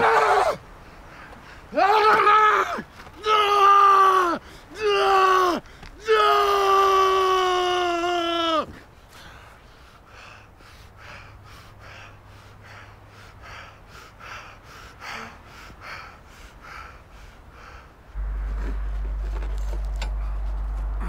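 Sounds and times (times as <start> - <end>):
man panting hard: 9.1 - 18.1.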